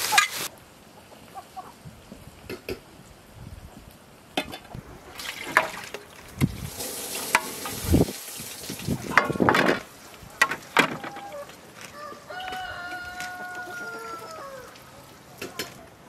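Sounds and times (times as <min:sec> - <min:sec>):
water pouring from metal basin: 0:05.1 - 0:10.0.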